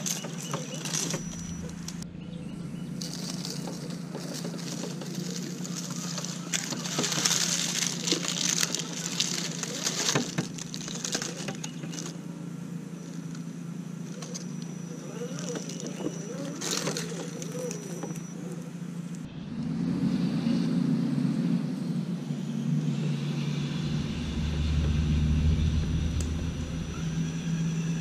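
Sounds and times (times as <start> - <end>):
tyres crunching on dirt: 0.0 - 19.3
electric motor hum: 0.0 - 28.0.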